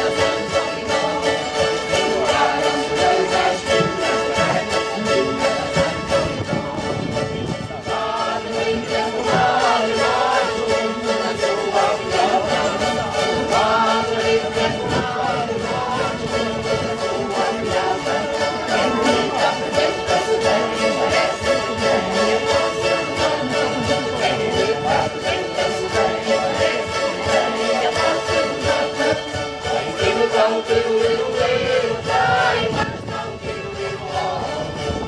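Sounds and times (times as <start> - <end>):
small guitars strumming folk tune: 0.0 - 35.0
voices singing: 0.0 - 35.0.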